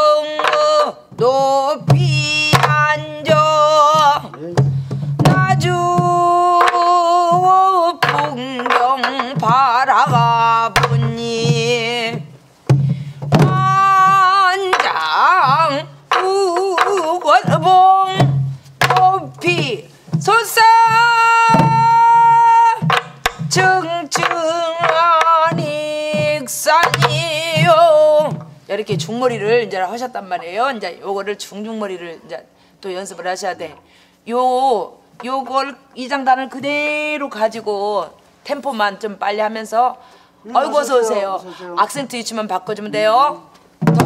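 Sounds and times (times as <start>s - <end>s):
woman singing: 0.0s - 4.6s, 5.2s - 12.4s, 13.3s - 43.4s
drumstick clicks: 0.4s - 0.7s, 15.6s - 17.3s
barrel drum strokes and booms: 1.9s - 6.4s, 7.2s - 29.6s.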